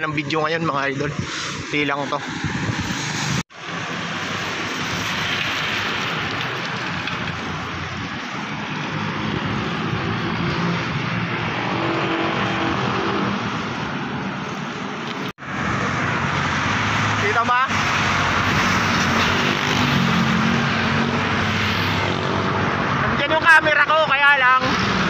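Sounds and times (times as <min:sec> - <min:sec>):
passing motor vehicles: 0:00.2 - 0:25.0
tyres hissing on wet road: 0:01.2 - 0:19.9.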